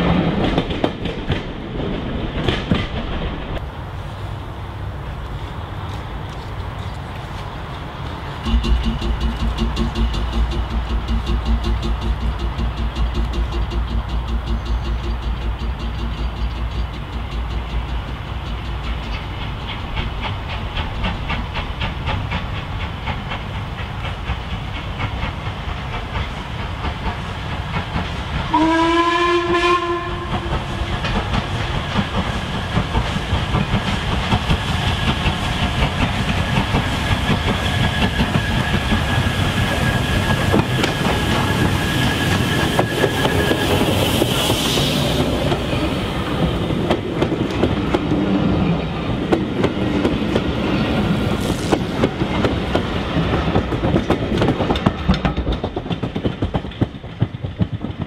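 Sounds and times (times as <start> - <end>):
coaches clattering over rail joints: 6.6 - 28.2, 30.3 - 58.0
steam locomotive exhaust beating: 8.0 - 58.0
steam whistle: 28.5 - 30.8.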